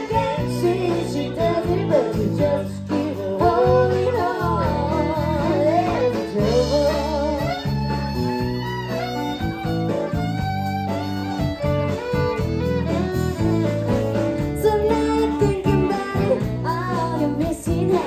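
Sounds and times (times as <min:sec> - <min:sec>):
woman singing: 0:00.0 - 0:07.7, 0:14.4 - 0:18.0
fiddle: 0:00.0 - 0:18.0.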